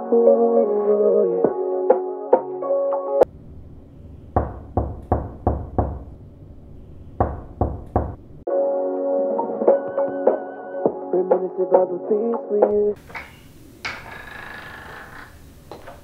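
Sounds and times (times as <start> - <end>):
background music: 0.0 - 3.3, 8.5 - 13.0
knocking on a door: 4.4 - 6.1, 7.2 - 8.2.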